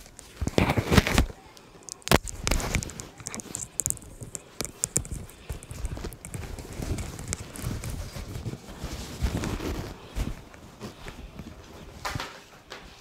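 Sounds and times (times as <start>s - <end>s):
rubbing on lavalier microphone: 2.2s - 12.0s.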